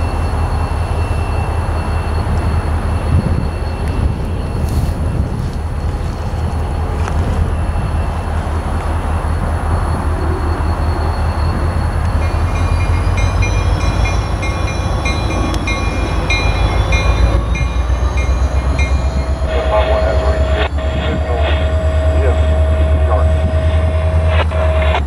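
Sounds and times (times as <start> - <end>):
locomotive engine rumble: 0.0 - 25.0
steady drone: 0.0 - 25.0
locomotive bell ringing: 10.6 - 20.7.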